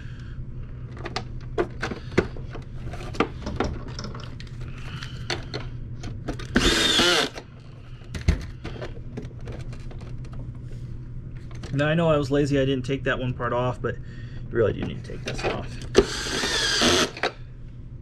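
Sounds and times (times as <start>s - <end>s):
plastic parts clicking and knocking: 0.9s - 4.5s
power screwdriver running: 6.5s - 7.4s, 15.9s - 17.4s.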